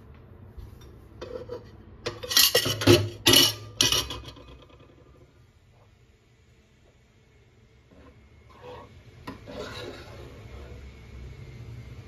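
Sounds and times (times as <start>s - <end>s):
dishes and cutlery clattering: 1.2s - 4.7s.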